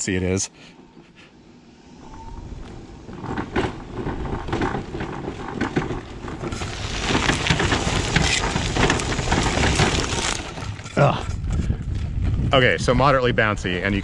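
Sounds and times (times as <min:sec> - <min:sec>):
suspension knocking and rattling: 0:02.6 - 0:12.2
wheelchair tyres crunching on gravel: 0:02.7 - 0:12.2.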